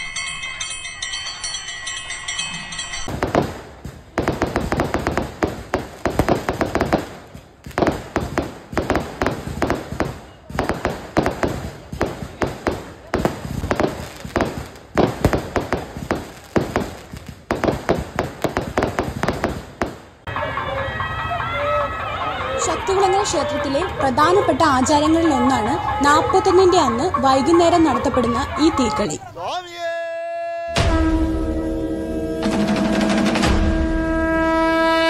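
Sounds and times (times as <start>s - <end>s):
fireworks bursting: 3.0s - 20.3s.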